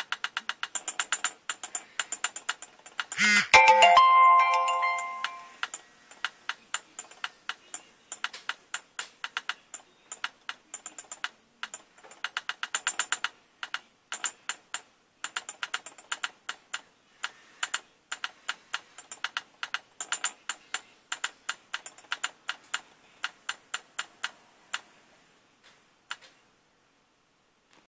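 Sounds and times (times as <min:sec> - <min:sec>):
toy drumming plastic taps: 0:04.8 - 0:24.4.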